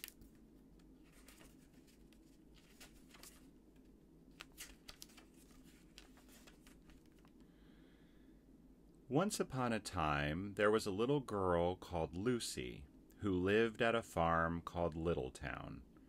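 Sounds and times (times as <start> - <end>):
book pages rustling: 0.0 - 7.4.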